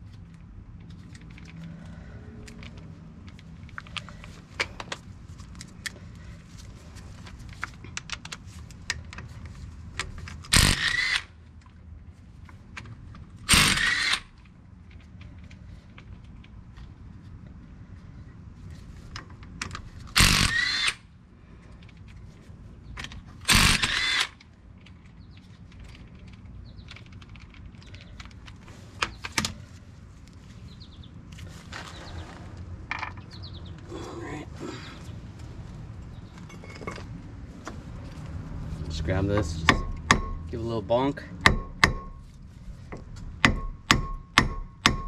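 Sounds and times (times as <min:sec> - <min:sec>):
cordless power tool spinning nuts: 0:10.5 - 0:11.3, 0:13.5 - 0:14.4, 0:20.1 - 0:21.0, 0:23.4 - 0:24.4.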